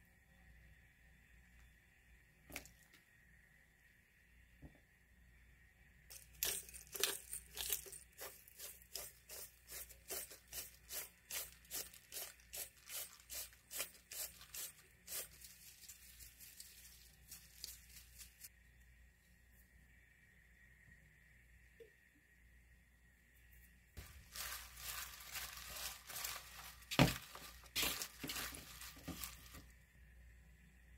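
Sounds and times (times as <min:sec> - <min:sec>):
pepper mill grinding: 0:06.1 - 0:18.5, 0:24.0 - 0:29.6.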